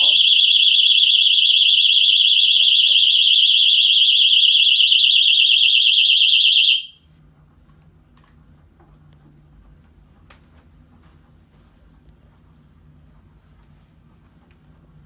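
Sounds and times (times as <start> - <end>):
warbling electronic alarm tone: 0.0 - 6.9.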